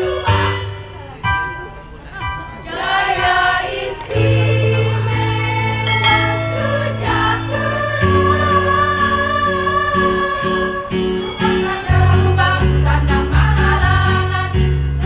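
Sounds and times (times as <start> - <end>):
women's choir singing: 2.1 - 15.0
low sustained accompaniment: 4.2 - 12.3.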